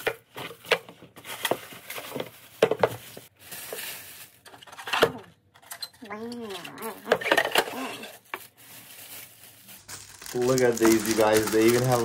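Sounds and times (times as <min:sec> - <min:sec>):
packaging rustling: 0:00.0 - 0:04.7, 0:06.6 - 0:12.0.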